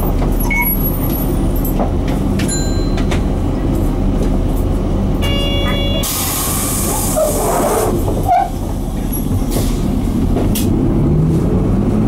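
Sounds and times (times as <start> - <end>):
bus diesel engine running: 0.0 - 12.0
air hissing: 6.0 - 7.9.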